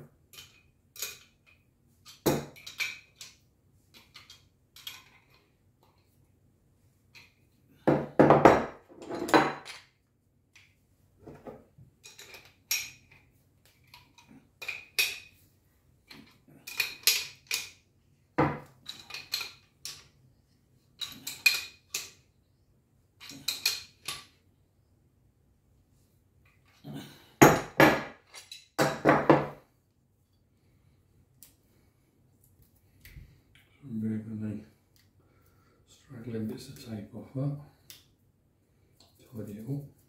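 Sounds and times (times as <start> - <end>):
metal tools clinking on wood: 0.3 - 3.4, 4.0 - 5.5, 12.0 - 13.2, 13.8 - 15.4, 16.1 - 17.8, 18.5 - 20.1, 21.0 - 22.2, 23.2 - 24.4, 26.6 - 29.6.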